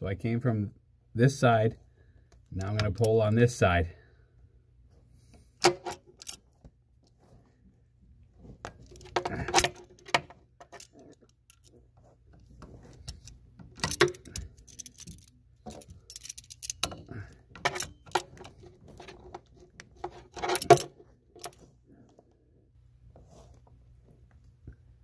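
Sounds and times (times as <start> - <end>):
pliers clicking and scraping: 5.6 - 6.4, 8.6 - 11.7, 12.6 - 21.6.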